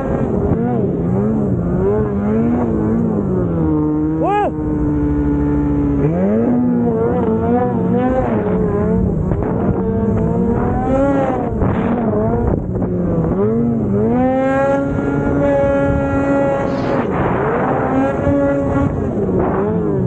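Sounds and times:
snowmobile engine revving: 0.0s - 20.0s.

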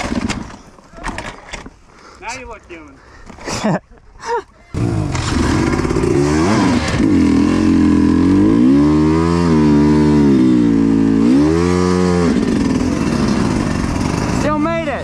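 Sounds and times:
dirt bike engine revving: 4.7s - 15.0s.

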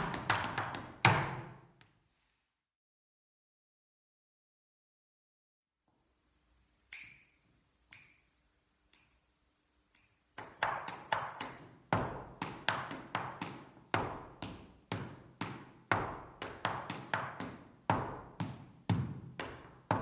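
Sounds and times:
dance shoes tapping on hard floor: 0.0s - 1.6s, 10.4s - 20.0s.

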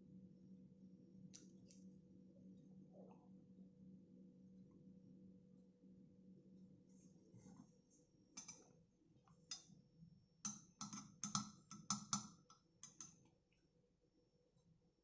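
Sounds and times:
metal spoon clinking on glass: 8.4s - 8.6s, 10.5s - 13.2s.

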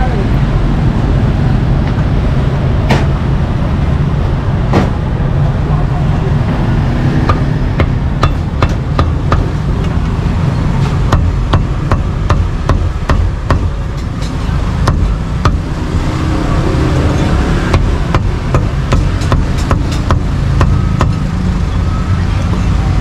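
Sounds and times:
low traffic rumble: 0.0s - 23.0s
cleaver chopping meat on board: 14.9s - 15.6s.

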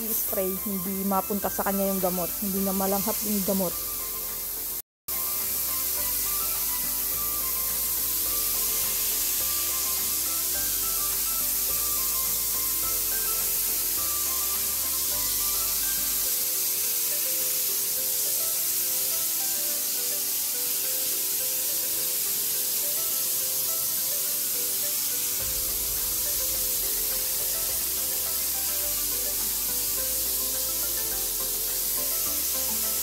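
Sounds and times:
background music: 0.0s - 33.0s
spray wand hissing: 0.0s - 33.0s.

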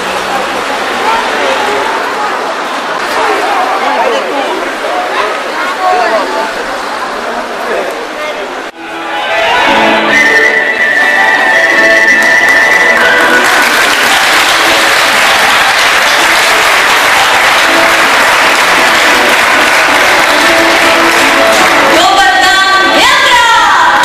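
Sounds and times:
voices: 0.0s - 8.8s
audience applauding: 12.0s - 22.2s.

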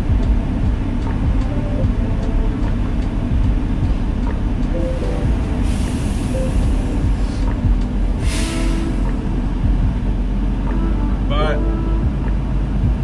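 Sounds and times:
truck engine and road rumble: 0.0s - 13.0s
hiss: 5.6s - 7.6s, 8.2s - 9.2s.

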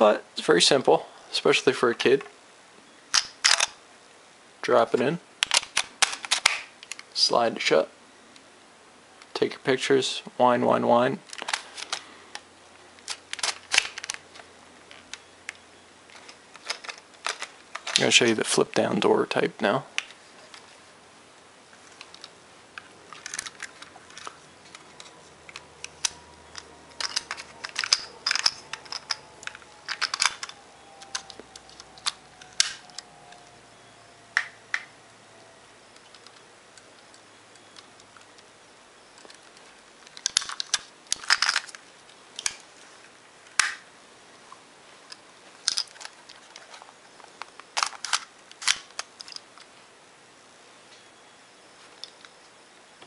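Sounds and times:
plastic camera clicks and clacks: 3.2s - 3.8s, 5.4s - 7.1s, 13.0s - 14.2s.

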